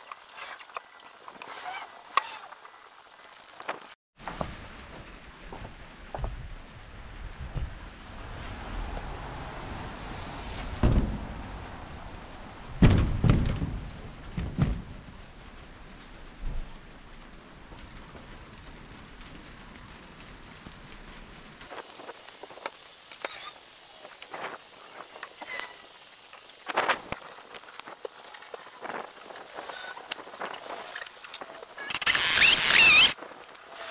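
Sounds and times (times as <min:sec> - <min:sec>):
heavy knocks of firewood: 0:12.8 - 0:14.9
sped-up crackling hiss: 0:13.9 - 0:33.9.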